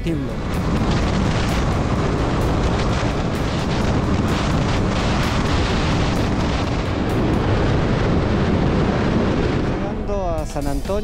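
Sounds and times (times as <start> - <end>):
motorcycle engine rumble: 0.0 - 10.6
wind buffeting microphone: 0.0 - 11.0.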